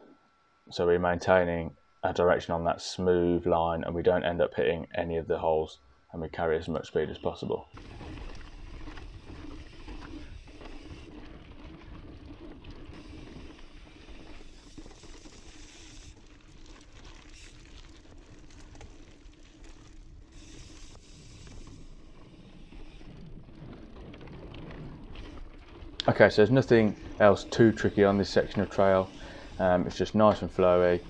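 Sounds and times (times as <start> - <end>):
bike rattling: 7.7 - 31.0
tyres rolling over stone and dirt: 7.7 - 31.0.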